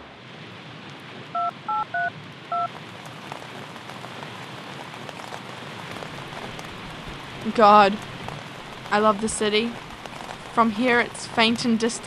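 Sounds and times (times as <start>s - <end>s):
steady rain: 0.0s - 12.0s
phone keypad beeps: 1.4s - 2.7s.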